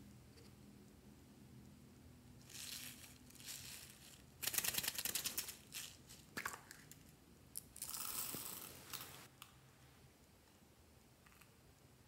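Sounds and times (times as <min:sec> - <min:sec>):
beads spilling with clatter: 0:02.4 - 0:06.6.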